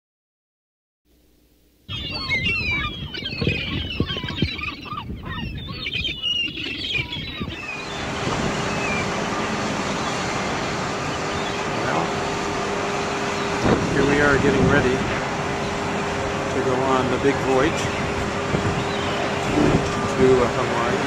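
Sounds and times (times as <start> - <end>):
faint steady hum: 1.1 - 21.0
birds chirping: 1.9 - 21.0
wind on microphone: 1.9 - 21.0
surf-like wash: 7.5 - 21.0.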